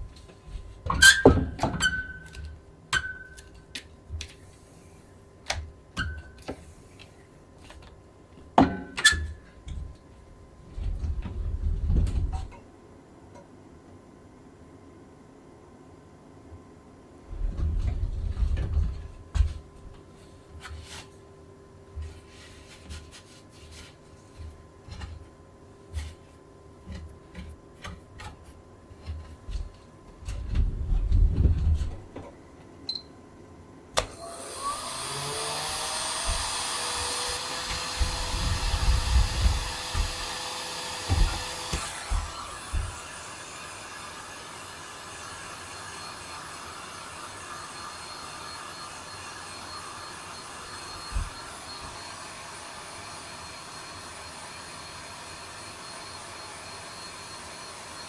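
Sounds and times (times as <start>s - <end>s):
small electric motor whining: 34.0s - 58.0s.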